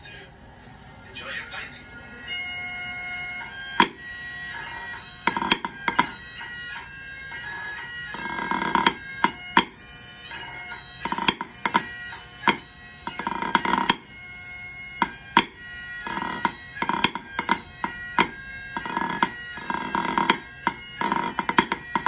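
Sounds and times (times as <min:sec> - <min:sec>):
bagpipe tune: 0:01.6 - 0:22.0
drumsticks tapping on practice pad: 0:03.8 - 0:04.0, 0:05.3 - 0:09.8, 0:11.0 - 0:14.1, 0:15.0 - 0:22.0.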